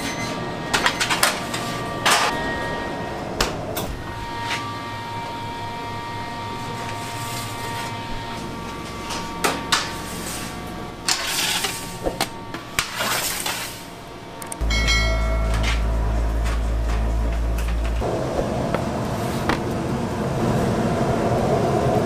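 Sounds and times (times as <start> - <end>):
bakery equipment humming: 0.0 - 22.0
metal sheet pans sliding: 8.6 - 13.9.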